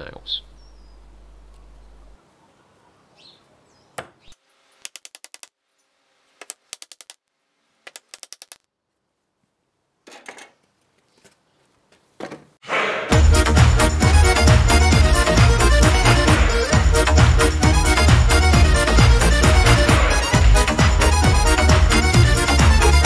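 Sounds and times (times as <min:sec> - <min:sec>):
music: 0:12.7 - 0:23.0.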